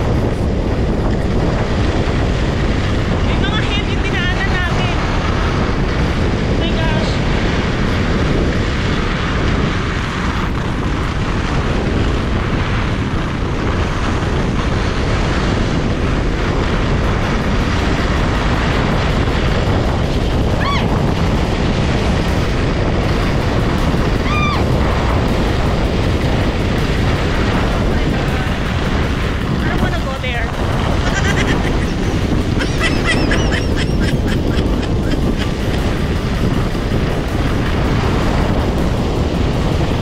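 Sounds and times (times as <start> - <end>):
skis sliding over snow: 0.0 - 40.0
wind buffeting microphone: 0.0 - 40.0.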